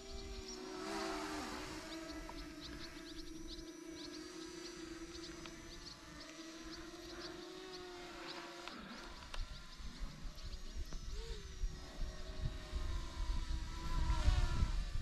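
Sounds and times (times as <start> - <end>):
small birds chirping: 0.0 - 14.4
model aircraft motor humming: 0.0 - 15.0
wind rumbling on microphone: 9.0 - 15.0.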